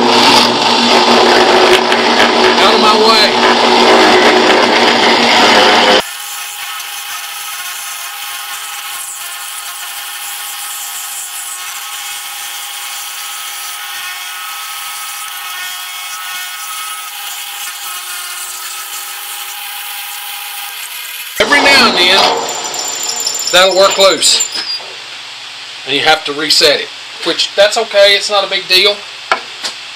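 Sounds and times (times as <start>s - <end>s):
drill press motor whine: 0.0s - 6.1s, 21.3s - 24.9s.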